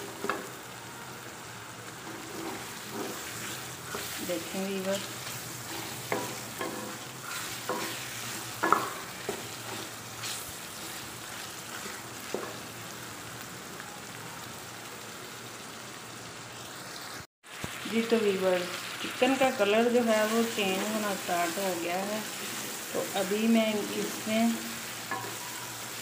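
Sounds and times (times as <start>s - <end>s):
chicken sizzling in oil: 0.0s - 26.0s
wooden spoon scraping a pot: 2.0s - 12.6s.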